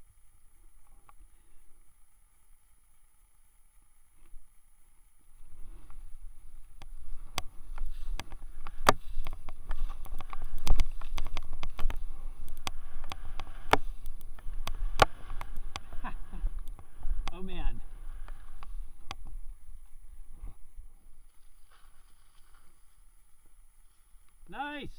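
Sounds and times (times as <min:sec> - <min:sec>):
sharp clicks and knocks: 0:06.8 - 0:17.4
skis swishing through powder snow: 0:21.2 - 0:23.1.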